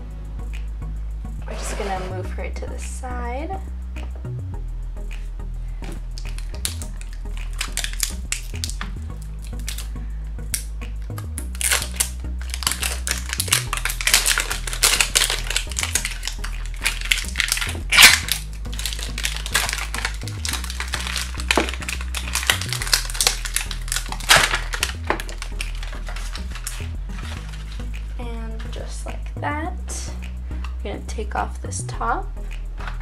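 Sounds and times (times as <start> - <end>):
quiet background music: 0.0 - 33.0
plastic wrapper crinkling and tearing: 6.2 - 9.9, 11.4 - 27.9.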